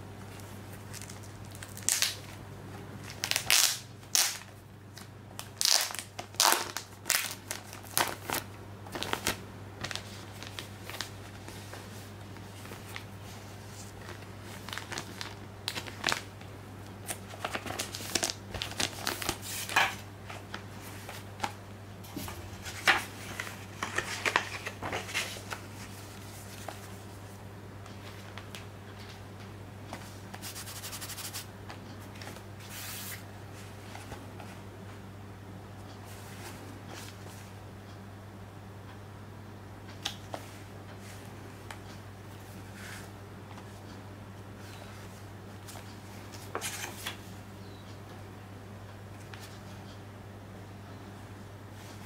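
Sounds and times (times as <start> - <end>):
steady low hum: 0.0 - 52.0
plastic wrap crinkling: 0.9 - 2.3, 3.1 - 4.5, 5.4 - 11.6, 13.7 - 16.4, 17.0 - 21.3.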